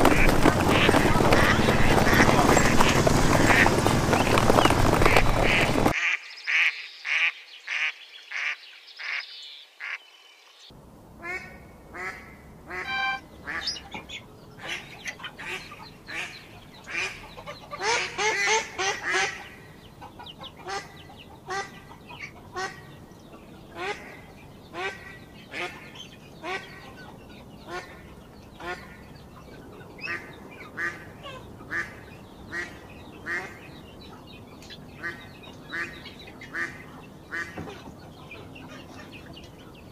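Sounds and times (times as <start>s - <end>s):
ducklings peeping: 0.0s - 10.0s, 11.2s - 39.9s
ducks quacking: 0.0s - 10.0s, 11.2s - 39.9s.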